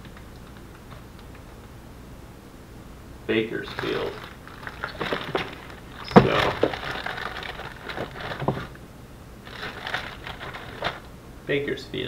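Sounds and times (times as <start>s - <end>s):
plastic bag rustling: 3.6s - 8.8s, 9.4s - 11.1s
handling knocks: 3.8s - 8.8s, 9.5s - 11.0s.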